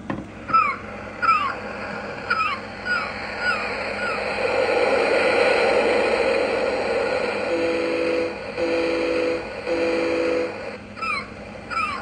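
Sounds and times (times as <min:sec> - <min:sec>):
recorded surf from small speaker: 0:00.0 - 0:12.0
two-tone foghorn blasts: 0:07.5 - 0:10.6.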